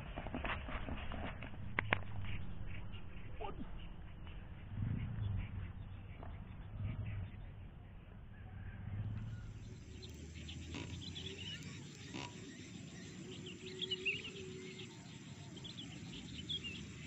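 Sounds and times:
low steady rumble: 0:00.0 - 0:17.0
high chirping calls: 0:09.3 - 0:17.0.

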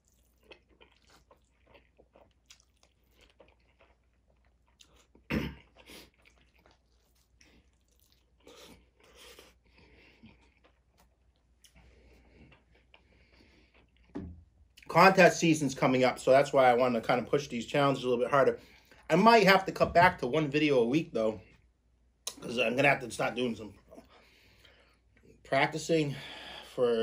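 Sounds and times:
close-up chewing: 0:00.0 - 0:14.9.

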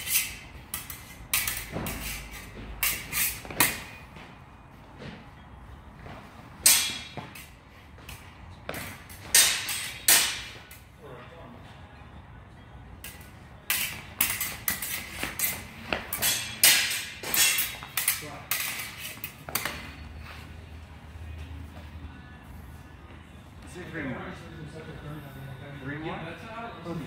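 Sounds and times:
steel swords clashing: 0:00.0 - 0:04.0, 0:06.6 - 0:08.2, 0:08.8 - 0:10.8, 0:13.0 - 0:20.1.

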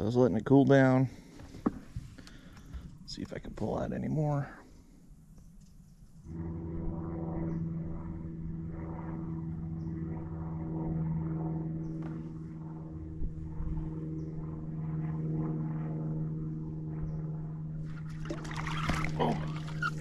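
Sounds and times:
boat motor humming: 0:16.3 - 0:20.0.

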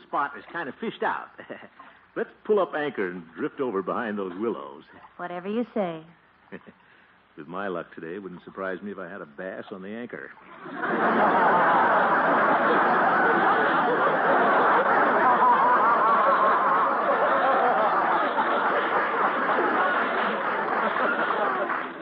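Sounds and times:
audience laughing: 0:10.4 - 0:22.0.

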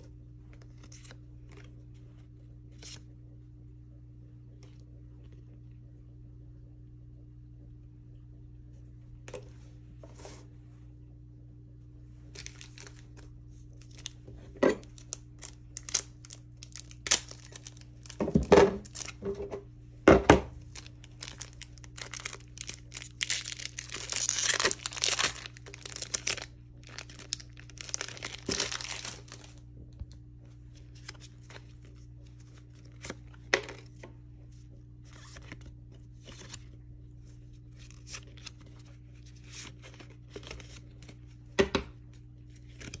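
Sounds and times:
foil wrapper crinkling and tearing: 0:12.3 - 0:19.2, 0:20.6 - 0:29.6.

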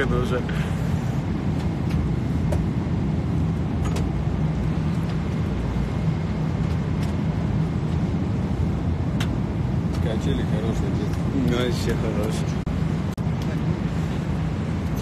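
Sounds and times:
airliner cabin rumble: 0:00.0 - 0:15.0.

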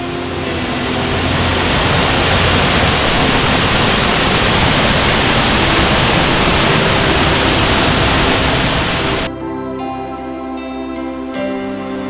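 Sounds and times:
waterfall roaring: 0:00.0 - 0:09.3.

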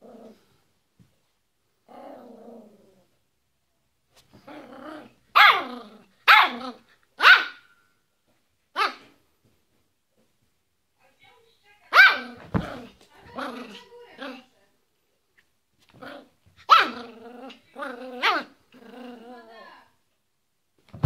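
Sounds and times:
dog growling: 0:00.0 - 0:00.5, 0:01.9 - 0:03.1, 0:04.4 - 0:06.8, 0:12.6 - 0:14.5, 0:16.0 - 0:19.6
dog barking: 0:05.4 - 0:07.7, 0:08.8 - 0:09.1, 0:11.9 - 0:12.4, 0:16.7 - 0:17.0.

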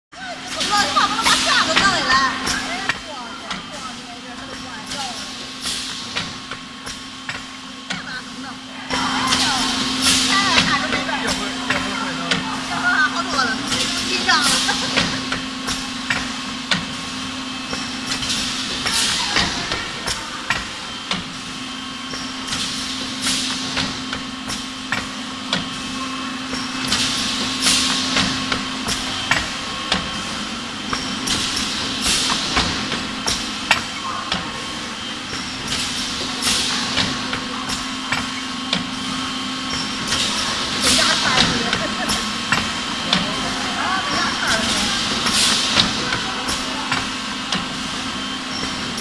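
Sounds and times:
machine humming: 0:00.1 - 0:49.0.

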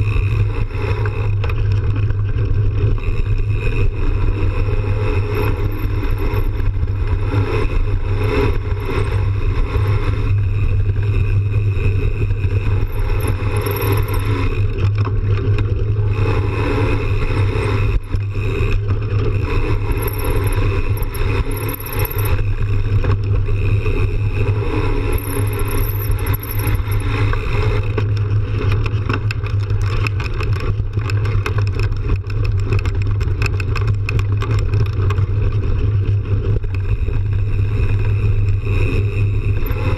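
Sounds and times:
wind and tyre rumble: 0:00.0 - 0:39.9
bike clattering over bumps: 0:10.6 - 0:16.8, 0:25.4 - 0:36.9.

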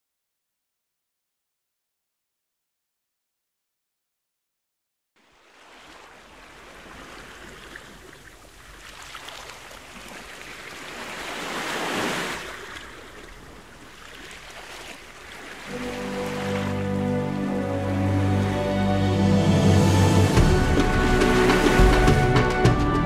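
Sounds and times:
rushing surf-like noise: 0:15.6 - 0:22.4.

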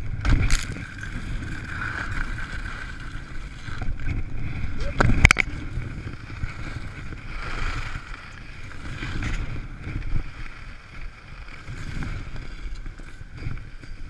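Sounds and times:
skis sliding over snow: 0:00.0 - 0:14.0
wind buffeting microphone: 0:00.0 - 0:14.0.

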